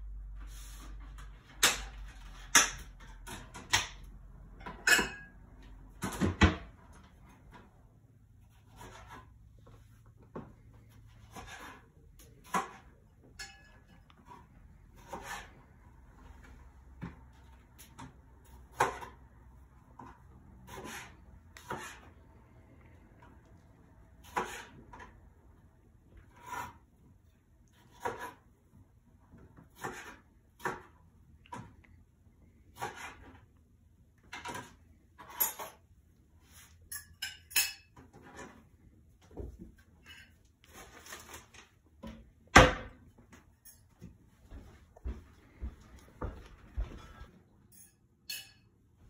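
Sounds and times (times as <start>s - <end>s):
kitchenware clinking and clattering: 1.6s - 7.7s, 11.1s - 15.6s, 34.2s - 38.7s, 39.4s - 44.1s, 46.9s - 48.8s.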